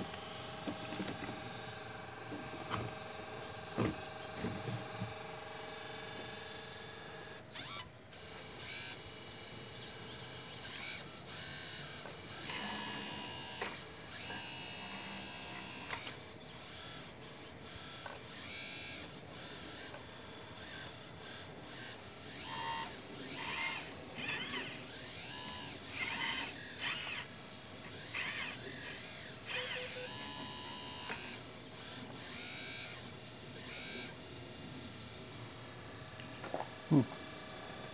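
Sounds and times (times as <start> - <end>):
hydraulic pump whining: 0.0 - 7.8, 21.8 - 37.9.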